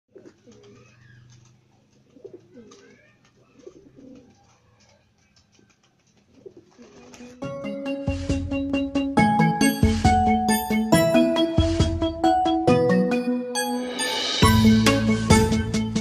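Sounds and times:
pigeons cooing: 0:00.1 - 0:07.4.

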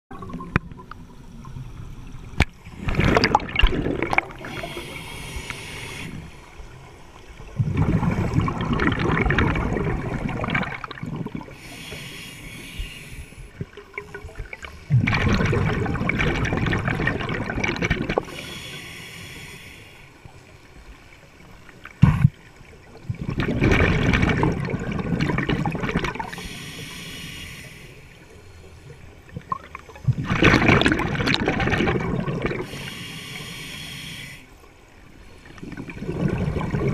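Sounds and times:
exhaled bubbles rushing: 0:00.1 - 0:04.9, 0:07.4 - 0:11.6, 0:13.6 - 0:18.4, 0:22.0 - 0:26.4, 0:29.3 - 0:32.8, 0:35.5 - 0:36.9
diver breathing through regulator: 0:04.4 - 0:06.6, 0:11.5 - 0:13.6, 0:18.2 - 0:20.2, 0:26.2 - 0:28.3, 0:32.6 - 0:34.6.

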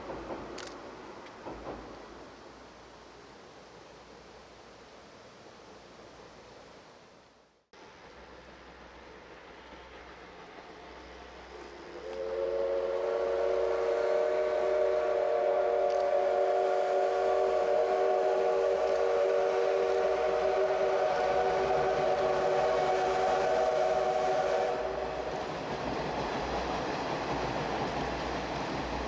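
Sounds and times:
train running: 0:00.0 - 0:03.3, 0:07.8 - 0:29.0
steam locomotive whistle: 0:11.8 - 0:25.4.

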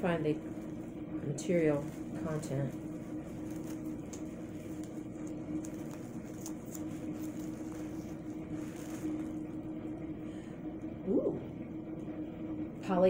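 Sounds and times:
mechanical hum: 0:00.0 - 0:13.0
fabric rustling: 0:01.5 - 0:09.6.

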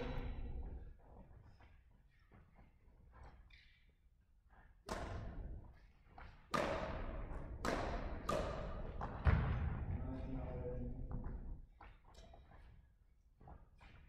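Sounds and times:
racket hitting shuttlecock: 0:04.9 - 0:05.6, 0:06.2 - 0:09.6.

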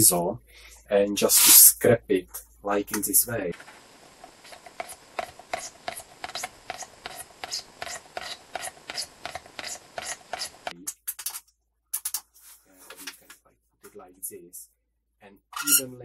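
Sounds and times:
chisel scraping plastic pipe: 0:04.5 - 0:11.4, 0:15.6 - 0:15.9.

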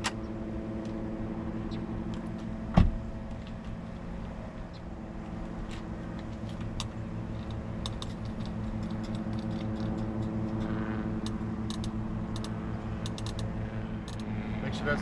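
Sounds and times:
steady low hum: 0:00.0 - 0:15.0
plastic clicks of twisting housing: 0:06.1 - 0:14.3.

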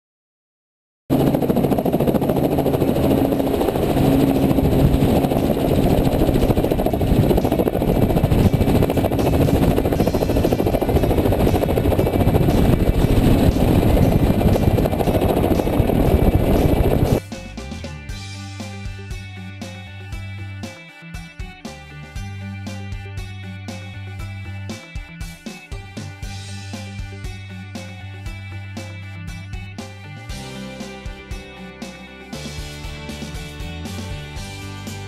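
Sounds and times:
helicopter engine and rotor: 0:01.1 - 0:17.2.

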